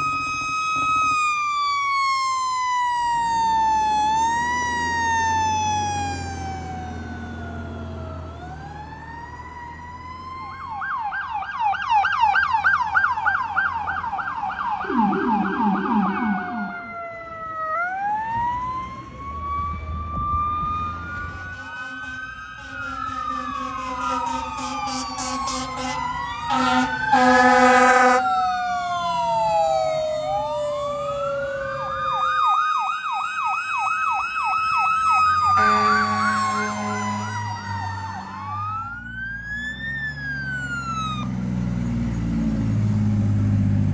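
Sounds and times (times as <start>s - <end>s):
fire engine sirens wailing and yelping: 0.0s - 43.9s
loud horn blast: 21.8s - 28.2s, 35.5s - 37.5s.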